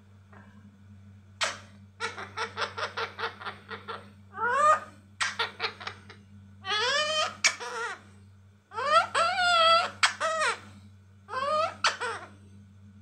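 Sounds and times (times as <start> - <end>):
parakeet mimicking laughter: 1.4 - 8.0, 8.7 - 10.7, 11.3 - 12.4
parakeet rising call: 6.6 - 8.0, 8.7 - 10.6.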